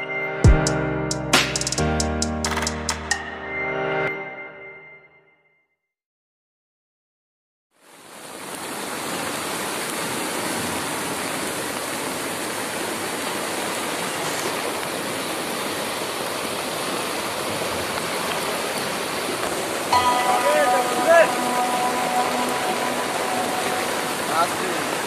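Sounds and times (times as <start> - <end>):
floodwater rushing in a stream: 7.8 - 25.0.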